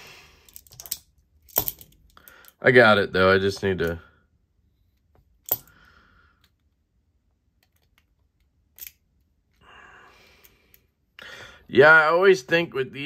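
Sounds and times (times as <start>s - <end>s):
pliers clicking on metal: 0.5s - 2.2s, 5.4s - 5.8s, 8.7s - 9.0s.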